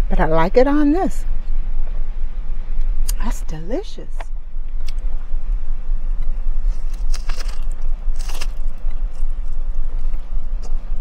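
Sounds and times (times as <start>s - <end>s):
steady low rumble: 0.0s - 11.0s
lettuce crunching while chewed: 6.6s - 10.8s.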